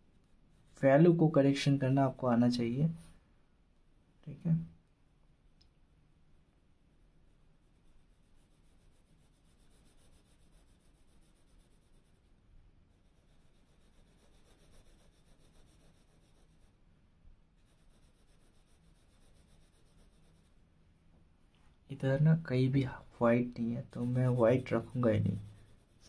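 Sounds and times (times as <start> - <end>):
pencil scratching on paper: 0.1 - 1.0, 7.3 - 16.8, 17.6 - 20.6, 23.4 - 26.0.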